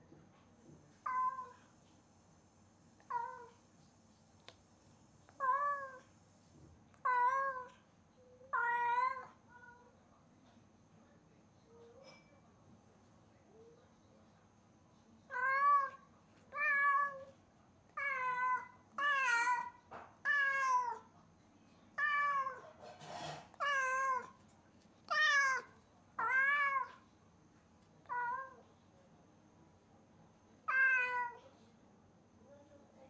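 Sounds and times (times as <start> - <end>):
cat meowing loudly: 18.0 - 21.0, 22.0 - 22.7, 23.6 - 24.3, 25.1 - 27.0, 30.7 - 31.4.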